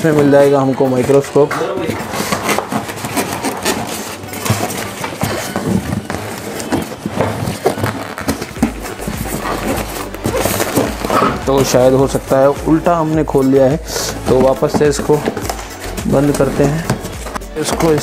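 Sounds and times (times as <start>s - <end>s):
foam scraping against cardboard: 1.8s - 18.0s.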